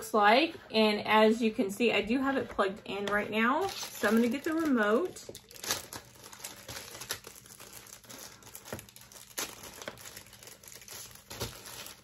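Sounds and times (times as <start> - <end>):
plastic bag crinkling: 3.4 - 12.0.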